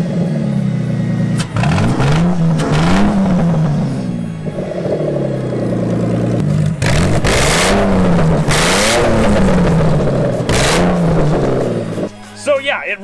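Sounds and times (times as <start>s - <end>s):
car engine revving: 0.0s - 12.3s.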